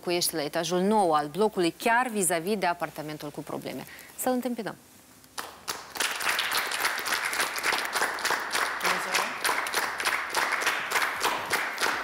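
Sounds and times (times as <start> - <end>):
studio audience applauding: 5.4 - 12.0.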